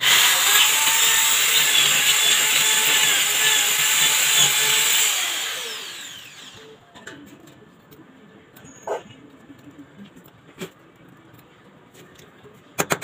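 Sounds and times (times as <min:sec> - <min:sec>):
electric drill boring into wall: 0:00.0 - 0:06.6.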